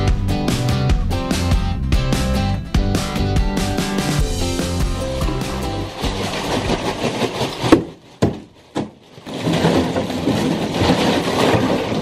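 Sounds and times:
bathtub filling with water: 0:04.3 - 0:08.1, 0:09.1 - 0:12.0
bag of ice cubes rattling: 0:04.3 - 0:12.0.

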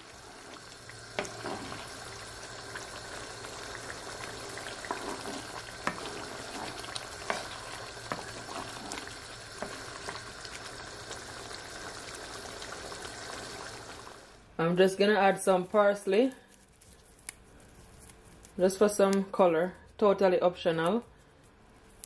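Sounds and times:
sauce bubbling: 0:00.0 - 0:14.4
spoon scraping a pan: 0:01.2 - 0:01.9, 0:04.3 - 0:10.2.

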